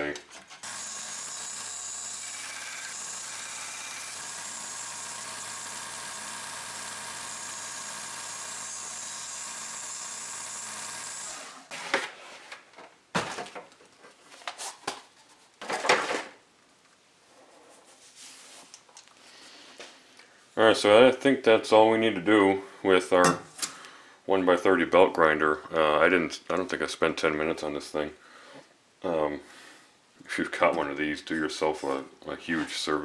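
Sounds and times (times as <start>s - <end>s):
belt grinder grinding steel: 0.6s - 11.8s.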